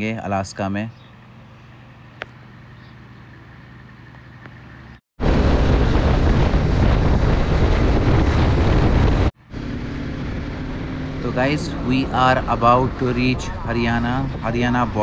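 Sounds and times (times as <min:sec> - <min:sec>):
motorcycle engine: 0:03.6 - 0:15.0
low hum: 0:05.2 - 0:15.0
wind rushing over microphone: 0:05.2 - 0:15.0.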